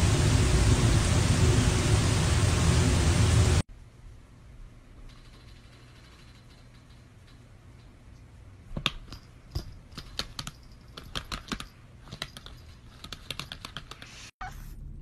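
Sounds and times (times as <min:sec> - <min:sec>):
low steady hum: 0:00.0 - 0:13.0, 0:14.5 - 0:15.0
laptop keyboard keys clicking: 0:08.8 - 0:14.1.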